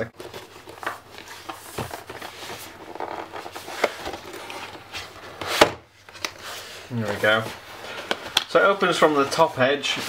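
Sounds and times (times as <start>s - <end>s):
cardboard rubbing and scraping: 0.2s - 5.7s.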